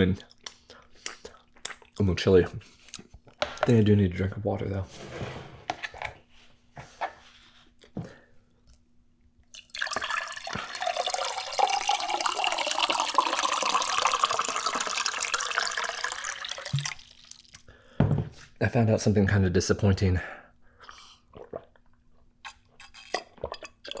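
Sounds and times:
water pouring into a glass: 0:09.5 - 0:17.6.

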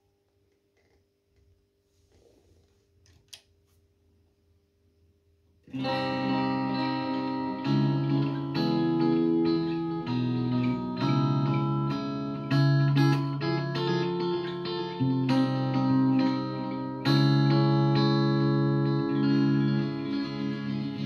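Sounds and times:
clean electric guitar with chorus: 0:05.7 - 0:21.0.

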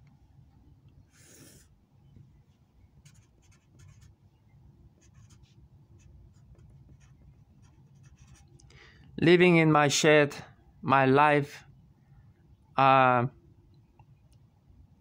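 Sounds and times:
marker writing on paper: 0:03.0 - 0:04.1, 0:05.0 - 0:08.4.

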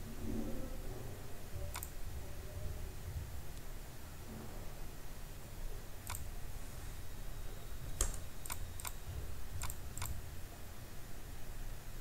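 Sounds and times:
low background hum: 0:00.0 - 0:12.0
computer mouse clicking: 0:01.7 - 0:02.0, 0:06.0 - 0:06.3, 0:08.0 - 0:09.0, 0:09.6 - 0:10.2.

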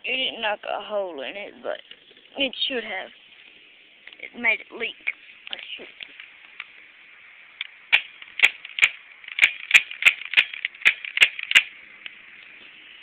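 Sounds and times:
air pistol firing sharp shots: 0:07.9 - 0:11.7.

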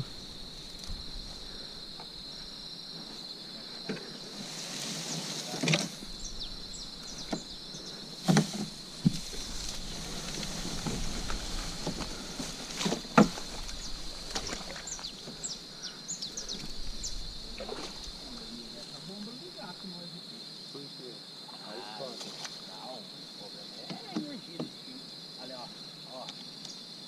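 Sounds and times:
high insect drone: 0:00.0 - 0:27.0
kayak paddle knocks and splashes: 0:10.4 - 0:15.3.

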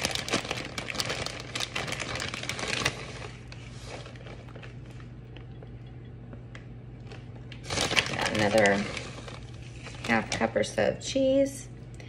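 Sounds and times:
plastic bag crinkling: 0:00.0 - 0:05.6, 0:07.0 - 0:10.9
low steady hum: 0:00.0 - 0:12.0.

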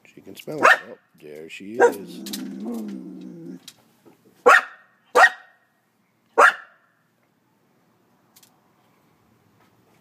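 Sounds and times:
dog barking: 0:00.6 - 0:01.0, 0:01.8 - 0:02.2, 0:04.4 - 0:05.6, 0:06.4 - 0:06.8.

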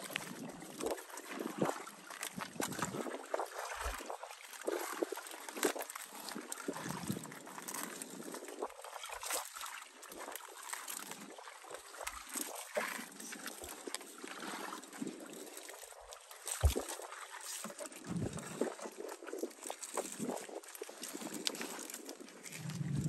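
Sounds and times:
water sloshing and splashing: 0:00.0 - 0:23.0.

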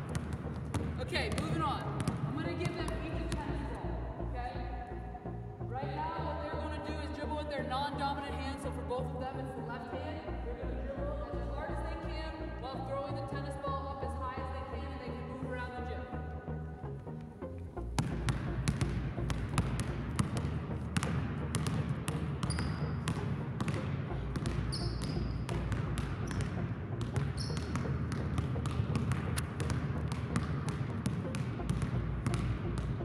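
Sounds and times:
basketballs bouncing on hardwood: 0:00.0 - 0:03.6, 0:18.0 - 0:33.0.

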